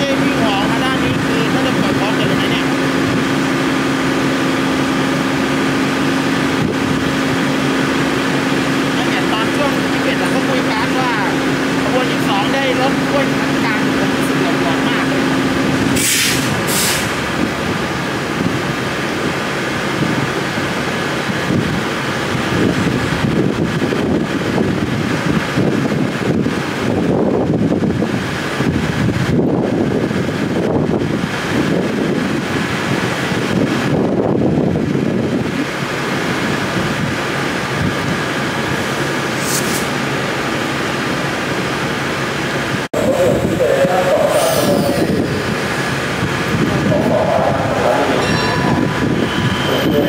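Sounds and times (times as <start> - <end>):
locomotive engine idling: 0.0 - 22.4, 45.3 - 50.0
wind buffeting microphone: 0.0 - 41.4, 42.6 - 50.0
high hiss: 15.9 - 17.4, 39.3 - 40.0.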